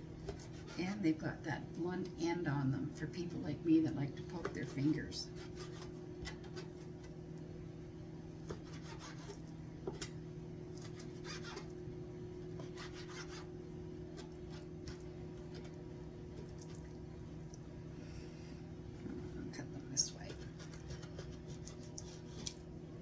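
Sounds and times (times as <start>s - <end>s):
steady low hum: 0.0s - 23.0s
knife cutting on cutting board: 8.5s - 10.0s, 10.8s - 11.7s, 12.6s - 13.5s.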